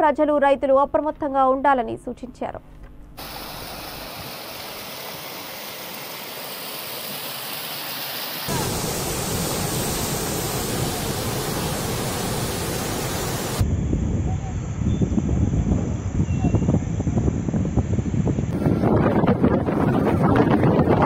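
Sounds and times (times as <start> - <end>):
rushing floodwater: 3.2 - 13.6
water pouring over spillway: 3.2 - 13.6.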